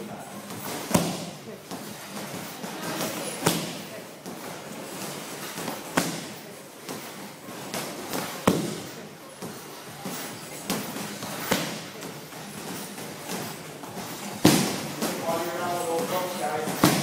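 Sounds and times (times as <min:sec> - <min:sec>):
punches and kicks on pads: 0:00.6 - 0:04.4, 0:05.5 - 0:08.9, 0:13.2 - 0:15.2, 0:16.6 - 0:17.0.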